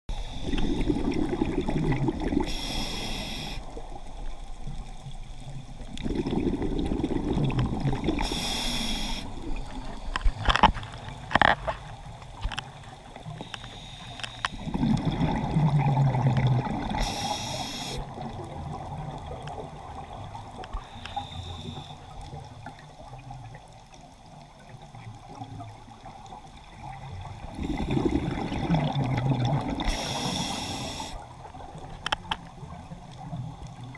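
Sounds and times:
diver breathing through regulator: 0.1s - 1.4s, 2.4s - 3.8s, 8.0s - 10.5s, 13.4s - 15.1s, 16.9s - 18.1s, 20.8s - 22.2s, 29.8s - 31.2s
exhaled bubbles: 0.3s - 4.8s, 5.4s - 11.5s, 14.6s - 20.5s, 26.7s - 32.0s.

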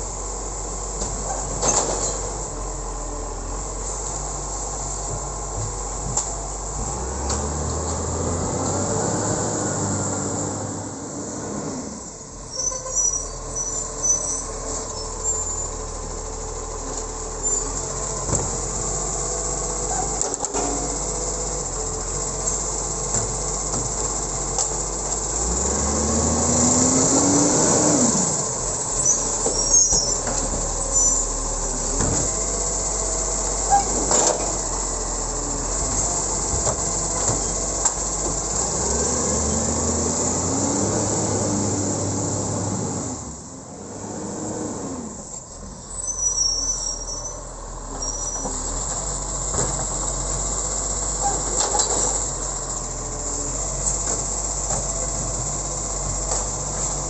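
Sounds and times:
garbage truck engine running: 0.0s - 57.0s
hydraulic arm whining: 22.4s - 43.3s.

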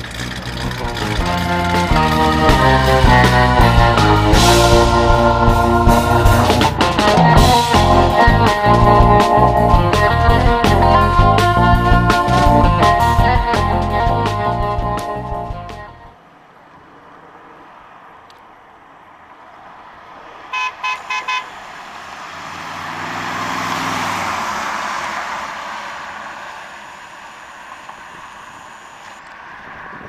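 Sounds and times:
car passing by: 16.1s - 30.0s
car horn toots: 20.5s - 21.5s.

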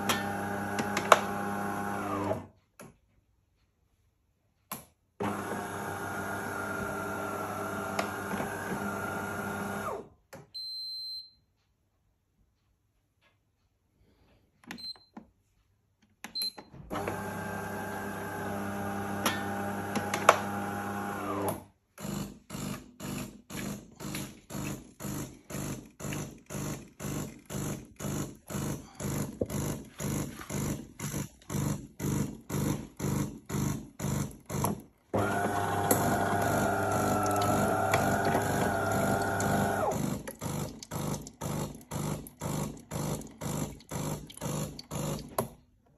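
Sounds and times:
coffee machine motor hum: 0.0s - 2.4s, 5.2s - 10.0s, 16.9s - 21.6s, 31.7s - 45.4s
pump pulsing: 0.0s - 2.4s, 16.9s - 21.5s, 25.1s - 45.4s
hot water running: 17.0s - 21.3s, 35.2s - 45.4s.

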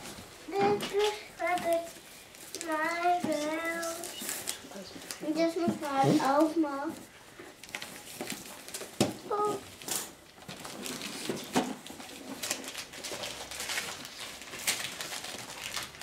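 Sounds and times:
wrapping paper rustling and tearing: 0.0s - 16.0s
child vocal sound: 9.3s - 9.7s.

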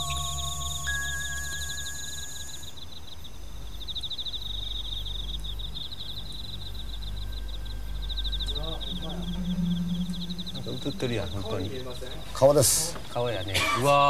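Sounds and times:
long chime-like tones: 0.0s - 2.8s, 6.8s - 12.9s
cricket-like chirping trills: 0.0s - 14.0s
steady low drone: 3.5s - 13.2s.

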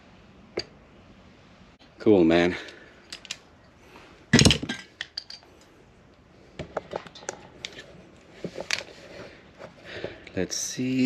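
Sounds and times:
hand tools and metal parts clicking: 2.6s - 3.4s, 4.3s - 5.7s, 6.6s - 8.9s.

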